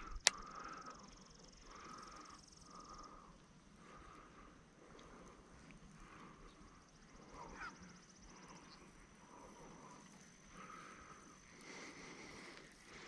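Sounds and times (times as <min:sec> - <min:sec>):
short animal calls: 0:07.4 - 0:07.9.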